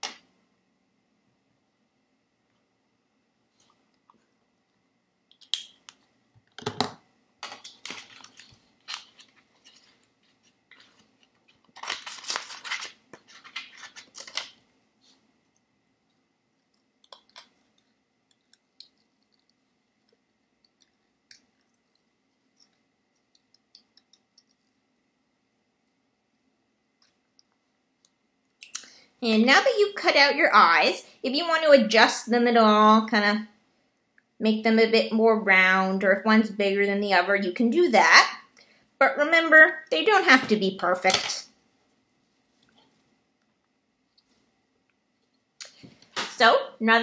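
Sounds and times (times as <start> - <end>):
paper rustling: 7.6 - 15.2.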